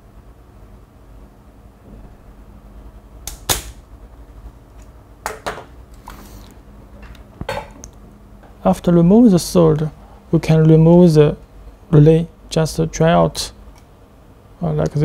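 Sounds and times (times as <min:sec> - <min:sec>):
desoldering pump snapping: 0:03.2 - 0:03.8.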